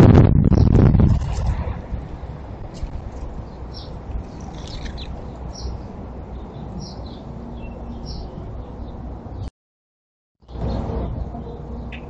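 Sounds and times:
steady low rumble: 0.0 - 6.5
songbirds chirping: 2.7 - 9.5, 10.4 - 12.0.

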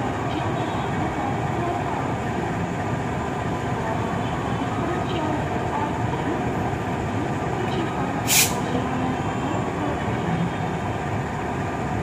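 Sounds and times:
locomotive engine rumbling: 0.0 - 12.0
air release hiss: 8.3 - 8.6.

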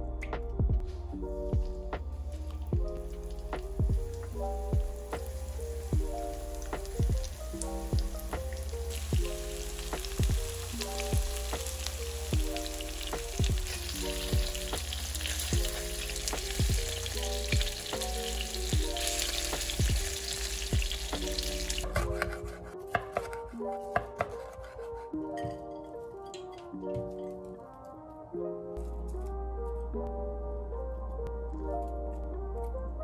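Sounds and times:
background music with a beat: 0.0 - 24.4
chicken sizzling in hot oil: 3.1 - 21.9.

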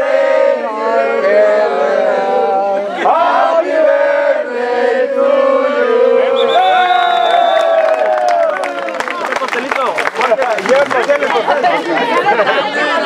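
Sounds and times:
crowd chanting: 0.0 - 7.2.

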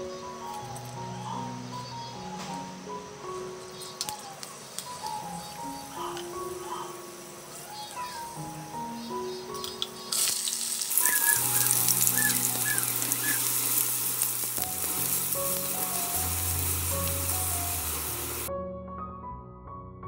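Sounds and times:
onions sizzling in hot oil: 10.1 - 18.5.

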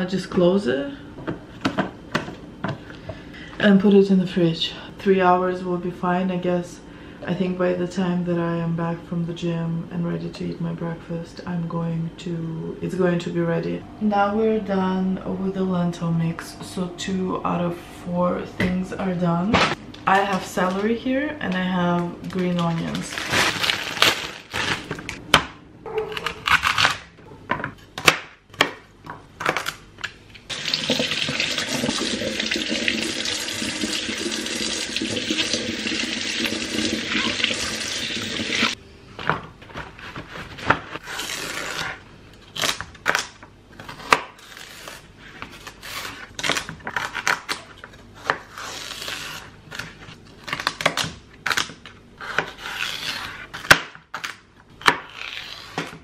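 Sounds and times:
plastic packaging crinkling: 22.0 - 25.2
kitchen tap running: 30.5 - 38.8.

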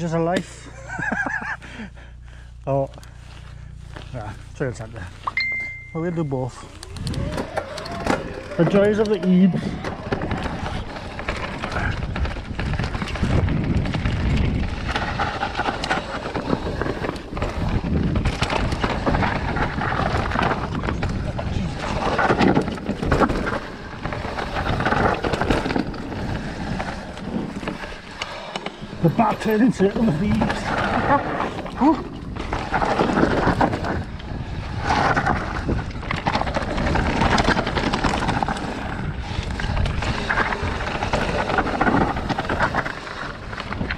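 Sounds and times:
low rumble: 0.0 - 28.0
bike knocking and rattling: 2.7 - 43.9
tyres rolling over dirt and stones: 6.4 - 43.9
wind rumble on microphone: 6.9 - 7.5, 9.6 - 27.9, 30.2 - 43.9.

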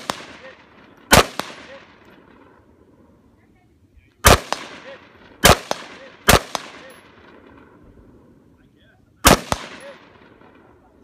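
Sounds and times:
gunshots: 0.0 - 2.0, 4.2 - 7.7, 9.2 - 10.6.

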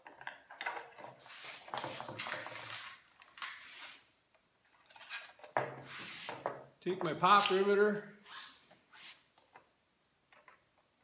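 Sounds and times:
metal tools clinking and rattling: 4.7 - 5.8.

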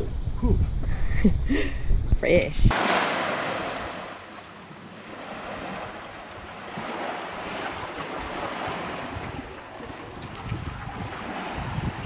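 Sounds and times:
small waves washing on sand: 2.7 - 12.0.

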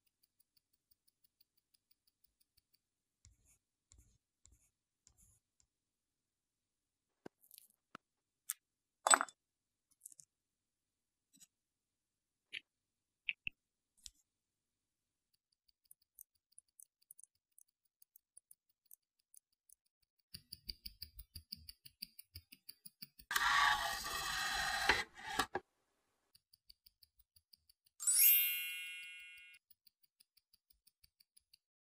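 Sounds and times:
watch ticking: 0.0 - 3.0, 15.3 - 23.3, 26.3 - 28.0, 28.9 - 31.9
bright chime: 28.0 - 29.6.

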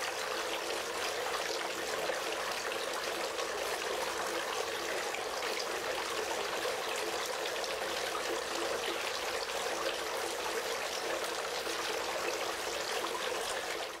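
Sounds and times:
fountain water splashing: 0.0 - 14.0.

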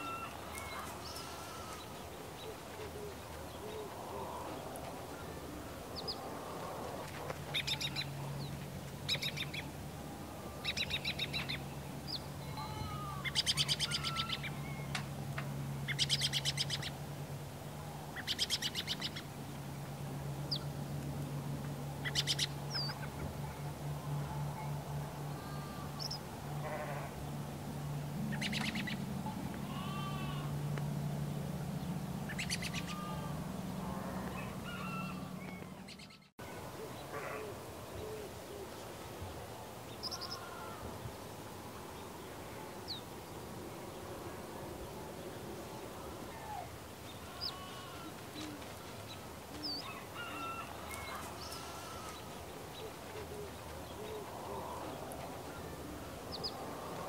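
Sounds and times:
birds chirping and calling: 10.6 - 15.0, 22.0 - 23.3, 28.3 - 29.0, 32.3 - 37.0, 40.0 - 40.8, 46.4 - 56.7.

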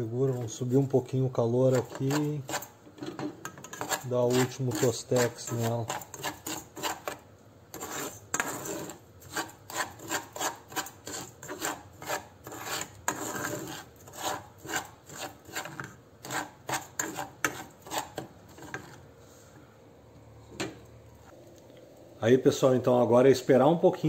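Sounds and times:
metal spoon scraping soil in saucepan: 0.0 - 2.8, 3.4 - 19.1.

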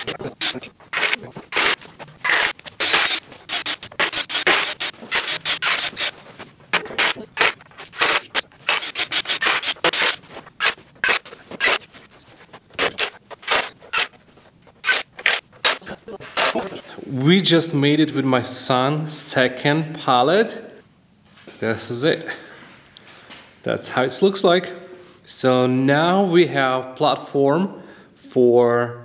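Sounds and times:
cordless drill driving screws: 0.0 - 6.2, 7.0 - 11.9.

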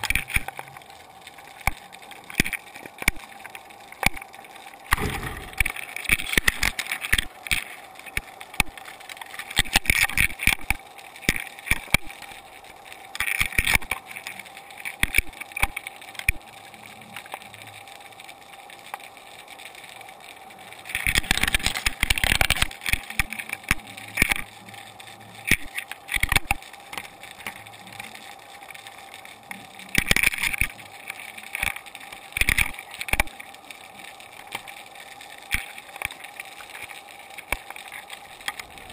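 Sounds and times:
faint hum: 4.9 - 5.9.

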